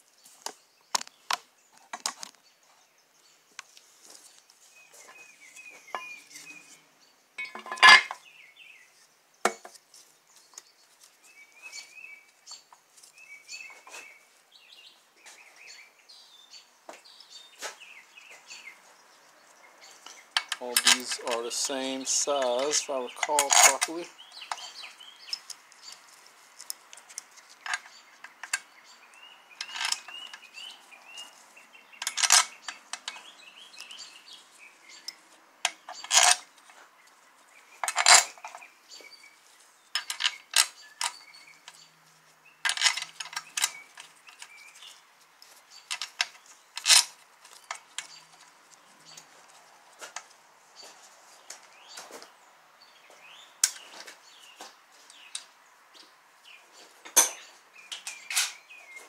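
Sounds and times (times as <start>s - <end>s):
steel bolts clinking on metal: 7.4s - 8.2s, 20.4s - 25.4s, 29.6s - 30.4s, 32.0s - 33.2s, 35.0s - 36.5s, 37.8s - 38.6s, 40.0s - 41.2s, 42.6s - 44.5s, 45.9s - 48.2s, 57.0s - 58.6s.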